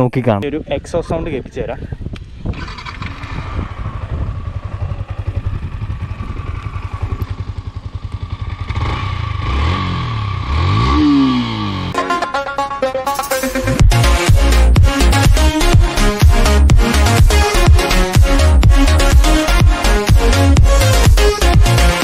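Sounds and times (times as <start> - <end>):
motorcycle engine idling and revving: 2.1 - 12.0, 13.8 - 22.0
music: 12.0 - 22.0.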